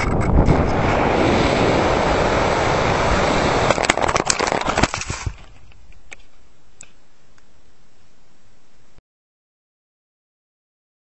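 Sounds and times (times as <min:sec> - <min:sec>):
air rushing over camera: 0:00.0 - 0:05.6
model plane crashing: 0:00.0 - 0:05.6
faint steady hiss: 0:04.6 - 0:09.0.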